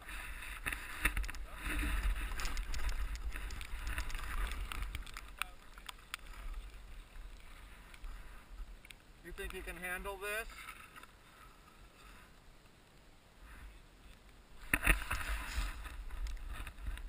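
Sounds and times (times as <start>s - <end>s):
wind rumbling on microphone: 0.0s - 9.8s, 14.6s - 17.0s
skis swishing through snow: 14.7s - 17.0s.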